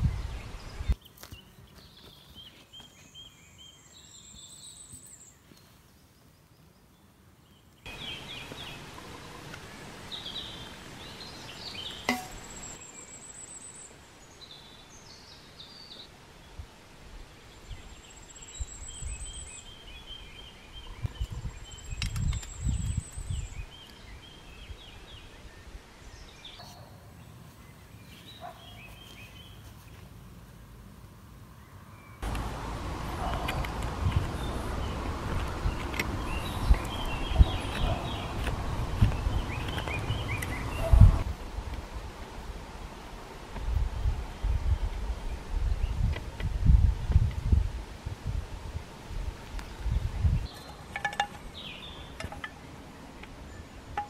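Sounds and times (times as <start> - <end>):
small birds singing: 0.0 - 16.6, 17.2 - 30.7, 31.5 - 41.3, 44.0 - 47.6, 49.4 - 54.0
sharp knock: 12.1 - 12.4.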